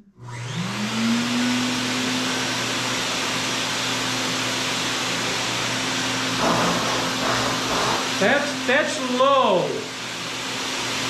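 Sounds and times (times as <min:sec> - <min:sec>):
fume extractor fan running: 0:00.2 - 0:11.0.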